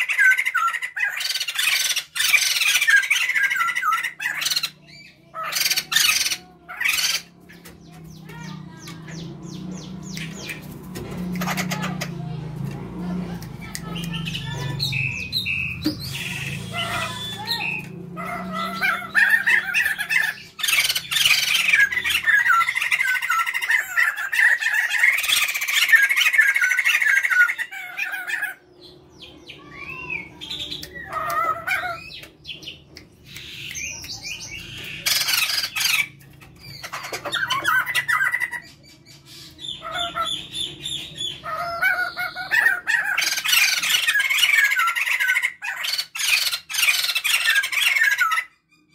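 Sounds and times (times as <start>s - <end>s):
birds squawking: 0.0s - 12.8s, 13.6s - 48.9s.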